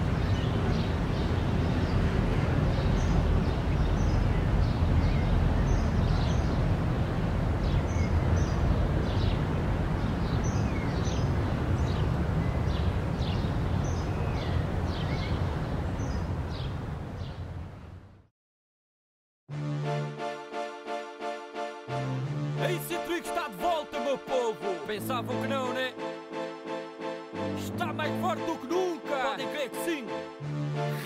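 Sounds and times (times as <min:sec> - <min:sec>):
small birds chirping: 0:00.0 - 0:02.0, 0:02.6 - 0:17.9.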